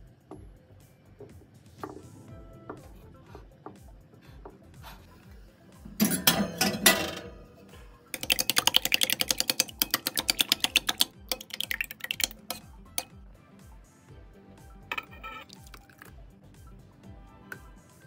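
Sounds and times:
faint background music: 0.0 - 18.0
spoon clicking against bowl: 8.2 - 13.2, 14.9 - 16.1.

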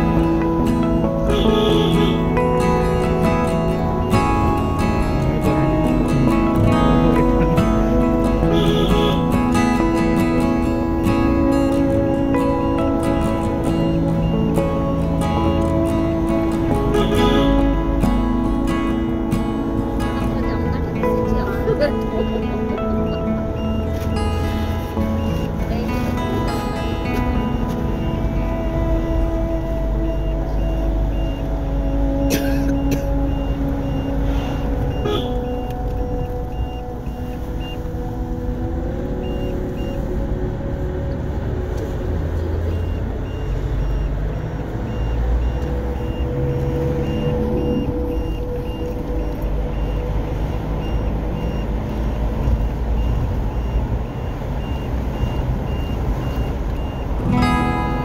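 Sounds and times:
engine and road rumble: 0.0 - 58.0.

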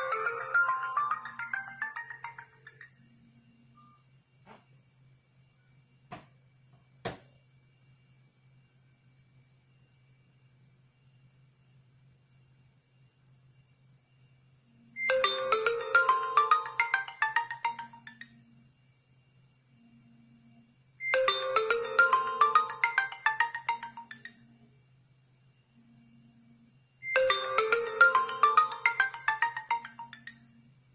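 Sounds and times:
phone ringtone melody: 0.0 - 2.9, 15.0 - 18.2, 21.1 - 24.3, 27.1 - 30.4.

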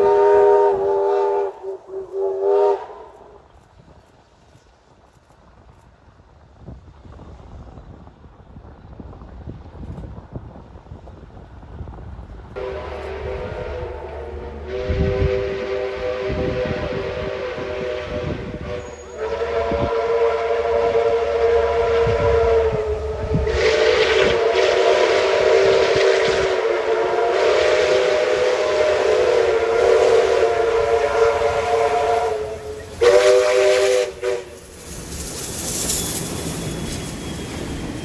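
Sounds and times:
steam locomotive whistles: 0.0 - 3.5, 12.6 - 38.0
hiss of steam and exhaust: 10.8 - 38.0.

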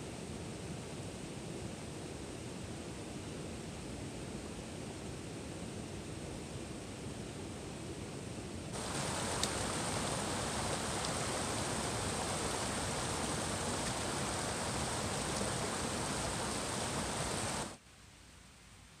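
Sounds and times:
creek rushing over rocks: 8.8 - 17.8.

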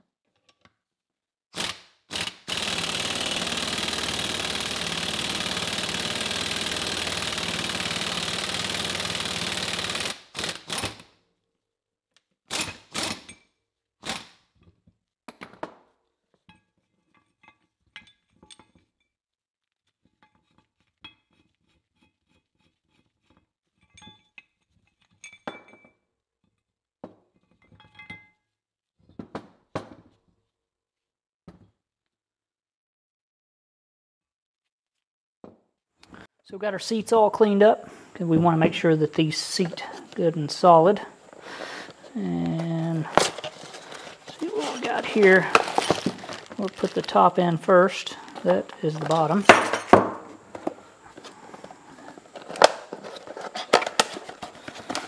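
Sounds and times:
air impact wrench hammering: 1.6 - 10.9.

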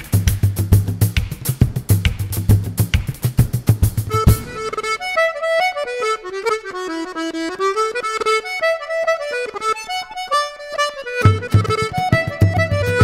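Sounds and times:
instrumental melody of held notes: 4.1 - 13.0.

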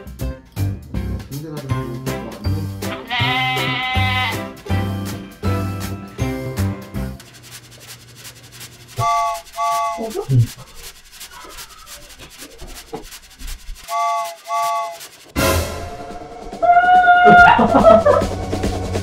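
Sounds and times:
music: 0.0 - 7.2, 13.8 - 19.0
rustling and scuffling: 7.2 - 15.4.

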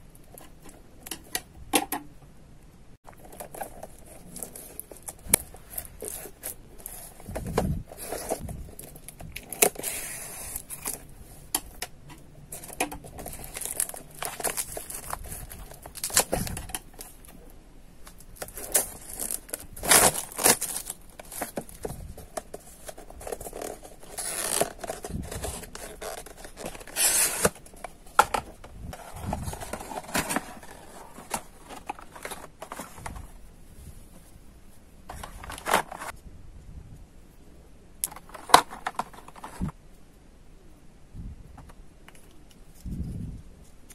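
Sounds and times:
plastic film crinkling and tearing: 12.5 - 17.2, 18.1 - 32.9.

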